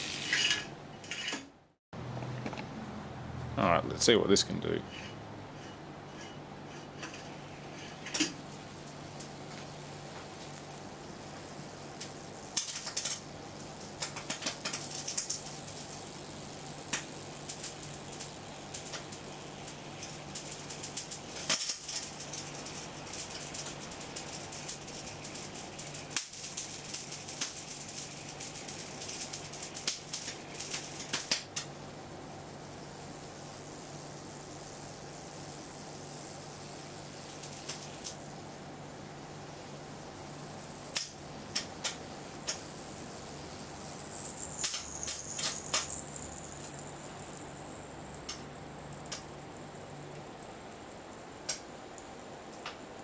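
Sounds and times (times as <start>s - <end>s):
low electrical hum: 0.0s - 53.0s
electric arcs crackling: 8.1s - 53.0s
high-pitched whine: 28.5s - 51.6s.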